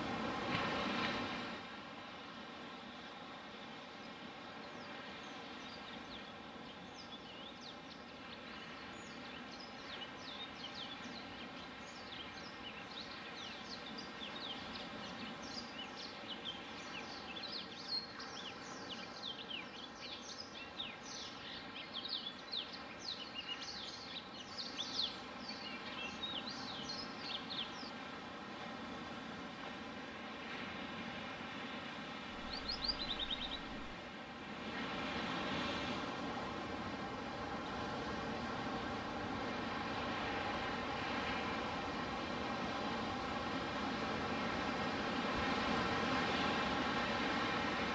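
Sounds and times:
surf washing on beach: 0.0s - 6.8s, 25.2s - 47.9s
small birds chirping: 32.4s - 33.9s.

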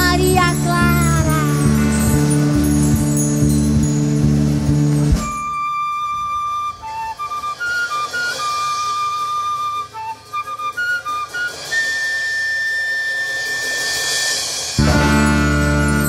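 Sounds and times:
flute playing slow melody: 5.1s - 16.0s.

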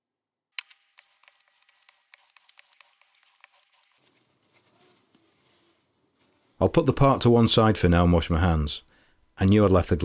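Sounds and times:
paper towel crinkling: 3.9s - 6.6s.

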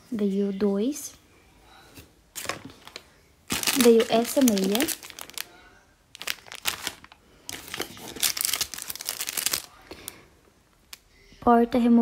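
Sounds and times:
plastic bags crinkling: 2.4s - 10.2s.

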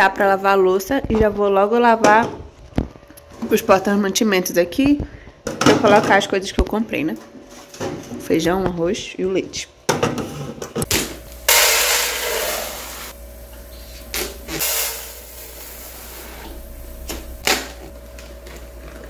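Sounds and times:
steady low hum: 10.8s - 19.0s.

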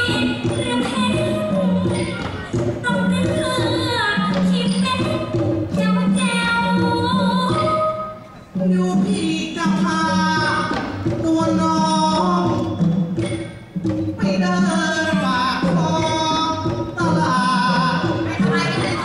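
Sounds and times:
instrumental accompaniment: 0.0s - 19.0s
man and woman singing: 14.2s - 19.0s.

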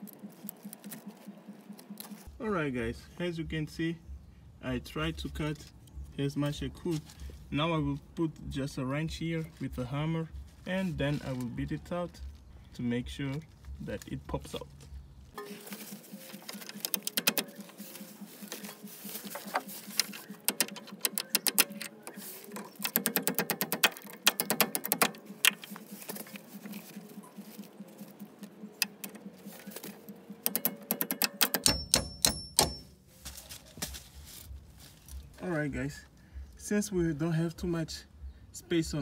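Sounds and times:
hammer tapping on metal socket: 30.4s - 32.9s
ringing hammer blows: 30.6s - 33.0s.

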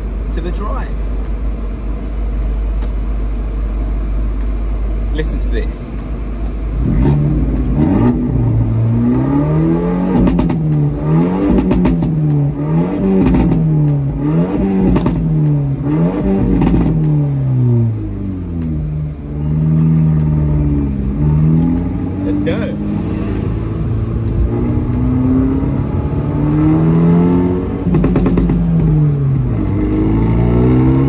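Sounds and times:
car engine revving: 0.0s - 31.0s
exhaust pops and crackles: 10.2s - 17.2s, 27.9s - 29.0s.

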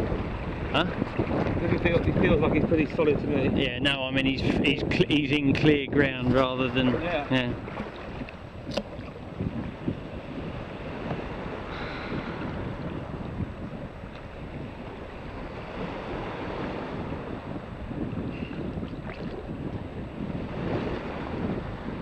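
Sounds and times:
wind buffeting microphone: 0.0s - 22.0s
small waves washing: 5.6s - 22.0s.

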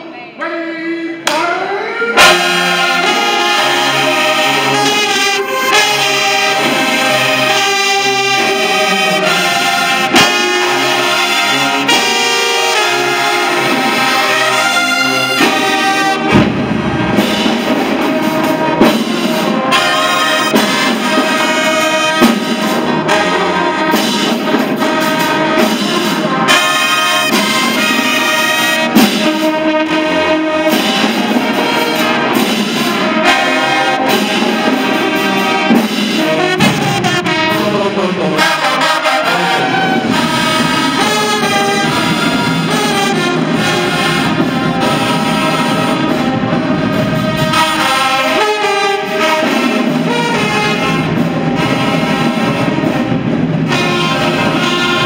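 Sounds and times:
marching brass band playing: 1.0s - 55.0s.

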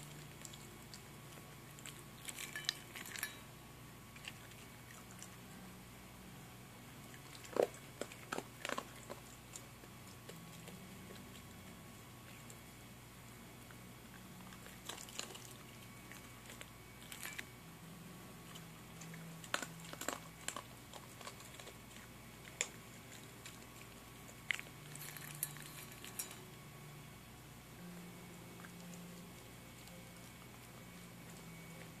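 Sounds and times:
dog crunching kibble: 0.0s - 3.5s, 7.0s - 12.7s, 13.6s - 17.6s, 18.4s - 26.5s
faint steady hum: 0.0s - 32.0s.

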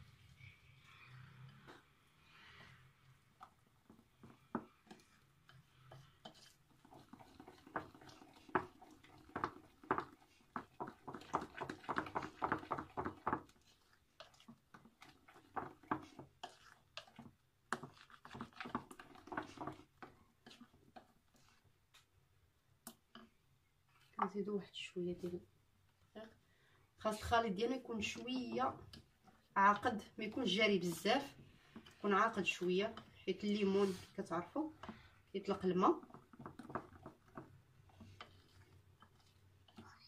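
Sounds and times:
whisk wires tapping bowl: 3.4s - 22.0s, 27.5s - 40.0s
whisk beating batter: 3.4s - 22.1s, 27.1s - 40.0s.

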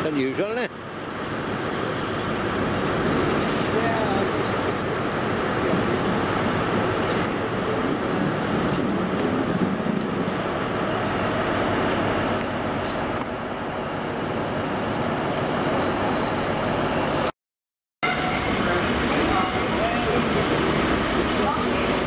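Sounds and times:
diesel train engine rumble: 0.0s - 17.3s, 18.0s - 22.0s
train wheels on rails: 1.3s - 17.3s, 18.4s - 22.0s
high wheel squeals: 16.1s - 17.3s.

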